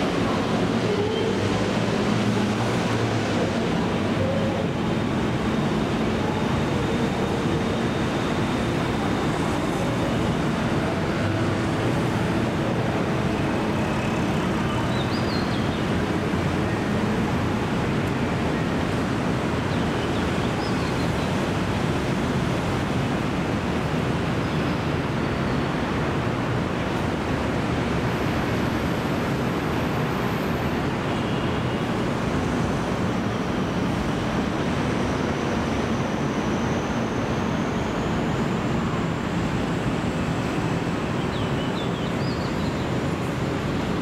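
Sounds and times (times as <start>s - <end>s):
rushing city background noise: 0.0s - 44.0s.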